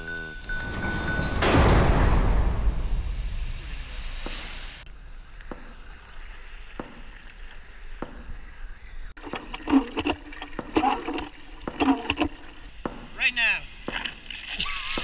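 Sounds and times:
water pouring into plastic bucket: 0:09.2 - 0:12.4
hand pump squeaking: 0:09.2 - 0:12.8.

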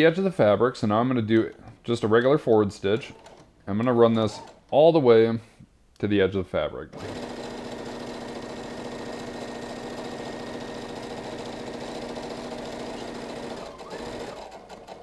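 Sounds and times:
sewing machine running: 0:03.0 - 0:04.7, 0:06.9 - 0:15.0.

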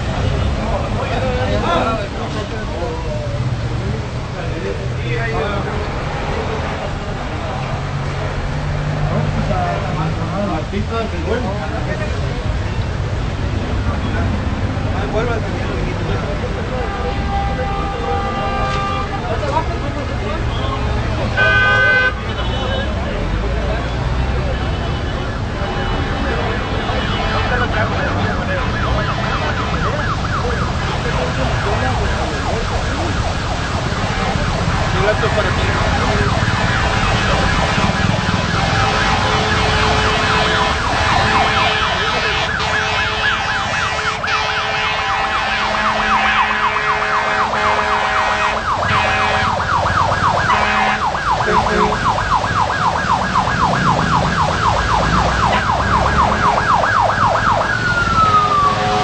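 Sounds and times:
low traffic rumble: 0:00.0 - 0:59.0
siren yelping: 0:28.2 - 0:59.0.

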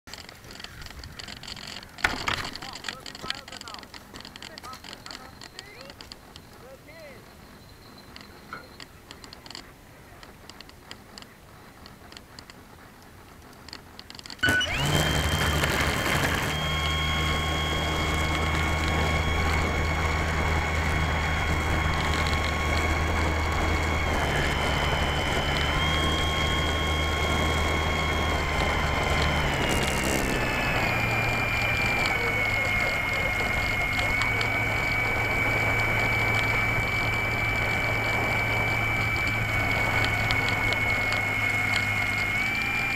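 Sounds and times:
faint ticks: 0:00.1 - 0:14.4
model plane motor whining: 0:00.1 - 0:42.9.

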